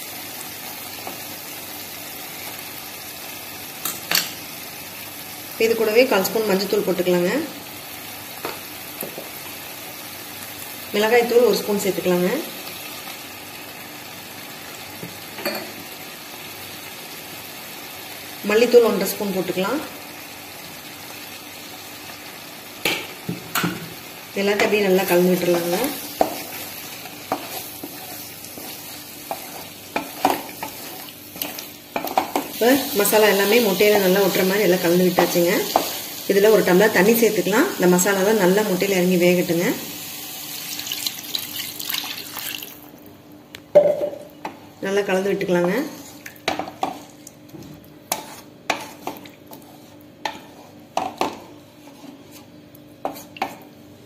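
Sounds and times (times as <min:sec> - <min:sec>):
oil sizzling: 0:00.0 - 0:43.0
wooden spatula scraping a pan: 0:25.0 - 0:32.5, 0:45.6 - 0:47.1, 0:48.1 - 0:53.7
sharp scrapes and taps: 0:48.1 - 0:53.6.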